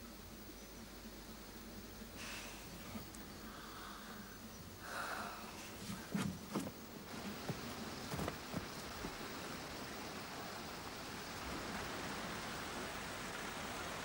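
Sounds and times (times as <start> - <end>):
rushing outdoor hiss: 0.0 - 14.0
footsteps running on grass: 6.2 - 9.5.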